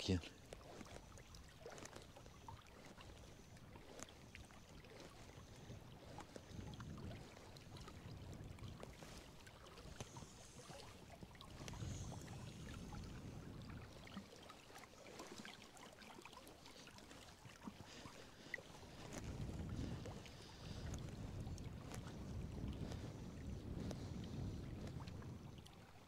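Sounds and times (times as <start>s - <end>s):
small waves lapping on rocks: 0.0s - 26.0s
wind gusting on microphone: 5.6s - 14.2s, 18.9s - 26.0s.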